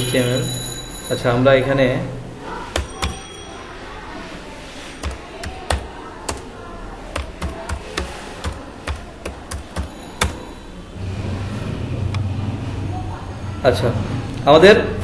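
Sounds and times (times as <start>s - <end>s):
low background noise: 0.0s - 15.0s
keyboard key clicks: 7.2s - 10.4s.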